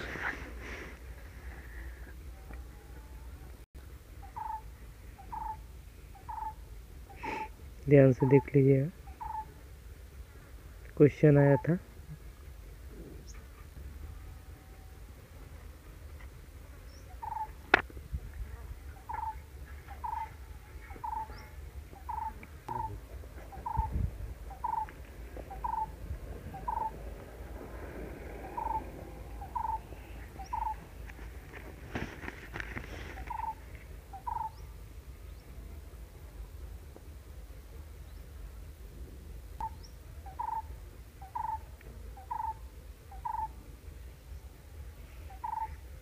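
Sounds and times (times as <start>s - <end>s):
animal calling short notes: 22.0s - 24.9s
brief rustle: 31.1s - 33.9s.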